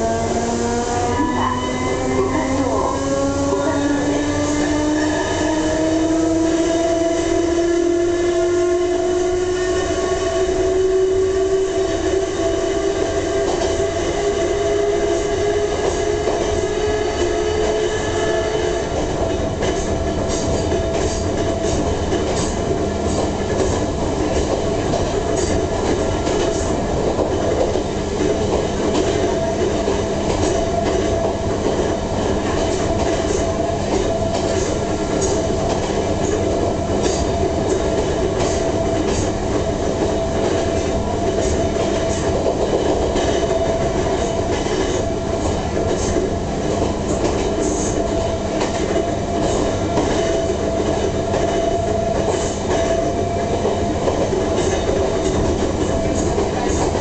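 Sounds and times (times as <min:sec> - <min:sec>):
train motor whine: 0:00.0 - 0:26.9
train running noise: 0:00.0 - 0:57.0.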